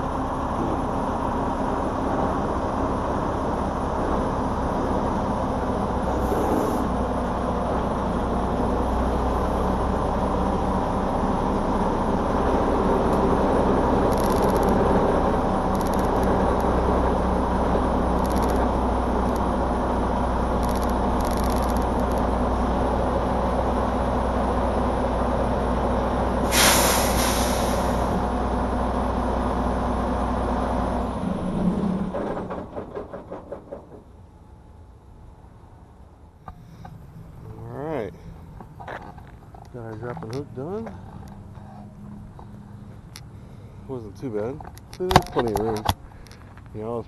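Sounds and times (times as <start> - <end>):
engine shutting off: 0.0 - 34.0
diesel engine running: 0.0 - 47.0
air hiss: 26.4 - 28.2.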